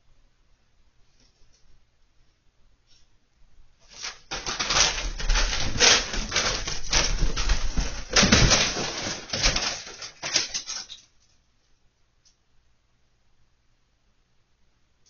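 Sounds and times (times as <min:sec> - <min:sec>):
plastic bag rustling and flapping: 0:03.8 - 0:11.1.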